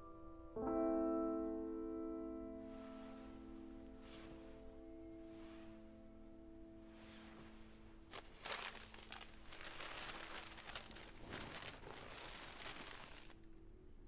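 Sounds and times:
paper crinkling and crackling: 0:08.1 - 0:13.5.

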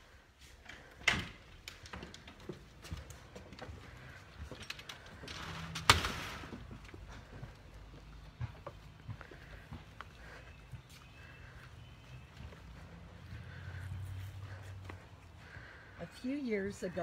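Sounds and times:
footsteps on wooden porch: 0:00.0 - 0:17.0
door opening: 0:00.6 - 0:03.1, 0:04.5 - 0:06.8.

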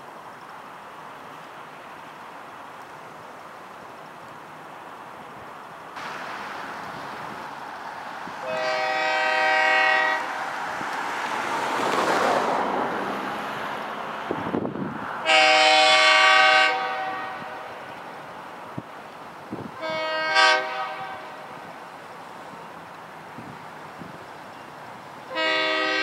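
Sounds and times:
train rushing noise: 0:00.0 - 0:26.0
locomotive air horn blasts: 0:08.4 - 0:10.4, 0:15.2 - 0:17.7, 0:19.8 - 0:21.5, 0:25.3 - 0:26.0.

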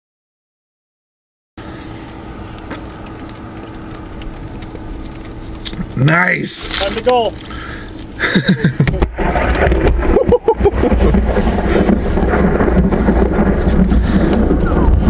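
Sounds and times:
rain hiss: 0:01.6 - 0:15.0
thunder rumbling: 0:07.6 - 0:15.0.

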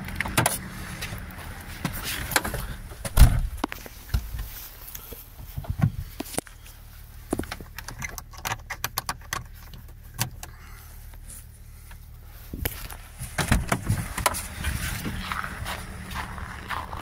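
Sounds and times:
diesel engine idling: 0:00.0 - 0:17.0
car door opening: 0:01.8 - 0:04.5, 0:13.2 - 0:15.4
clicks and rattles of handling: 0:07.3 - 0:10.6.

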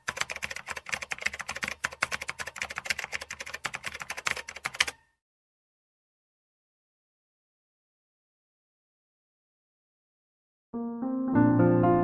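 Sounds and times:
fast keyboard typing: 0:00.0 - 0:05.0.

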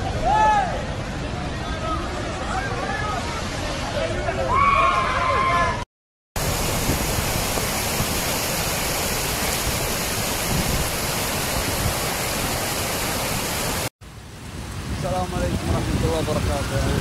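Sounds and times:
floodwater rushing: 0:06.4 - 0:17.0.

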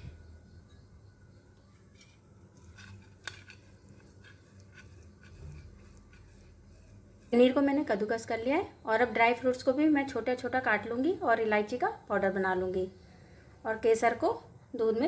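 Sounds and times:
cheese scraping on a grater: 0:02.6 - 0:08.1.

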